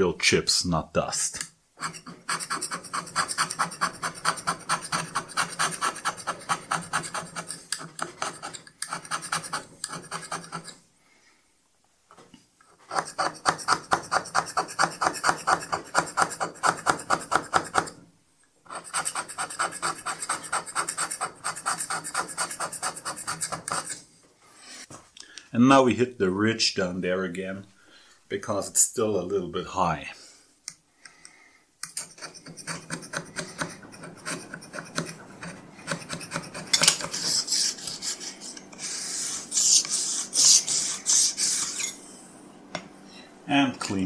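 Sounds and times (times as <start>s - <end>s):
metal scraper rasping on metal: 1.8s - 10.8s, 12.8s - 18.0s, 18.6s - 24.0s, 31.8s - 42.0s.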